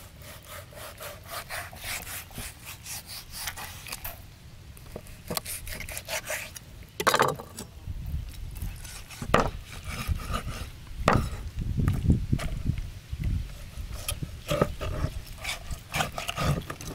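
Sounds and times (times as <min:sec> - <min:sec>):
knife scraping through skin and bone: 0:00.2 - 0:04.2, 0:05.0 - 0:06.6, 0:08.5 - 0:11.4, 0:13.5 - 0:16.9.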